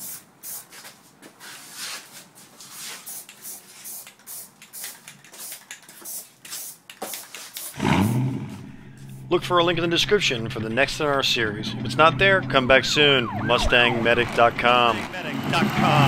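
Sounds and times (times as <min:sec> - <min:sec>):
aerosol can spraying: 0:00.0 - 0:00.9, 0:02.7 - 0:08.0.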